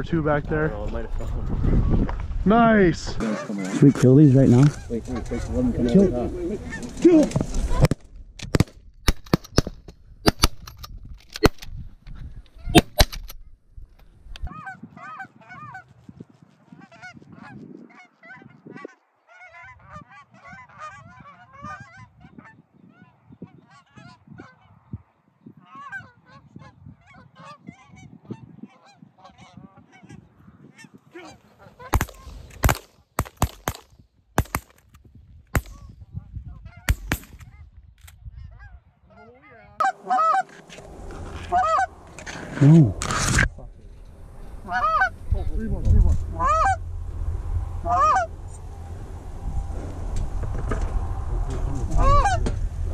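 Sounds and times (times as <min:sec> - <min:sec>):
geese honking: 0:03.2 - 0:03.9, 0:14.5 - 0:16.0, 0:16.7 - 0:24.8, 0:25.6 - 0:32.4, 0:38.4 - 0:43.2, 0:44.2 - 0:46.9, 0:47.5 - 0:51.2, 0:51.9 - 0:52.6
shotgun blasts: 0:08.4 - 0:10.6, 0:12.7 - 0:13.2, 0:31.9 - 0:34.8, 0:35.5 - 0:35.9, 0:36.9 - 0:37.4.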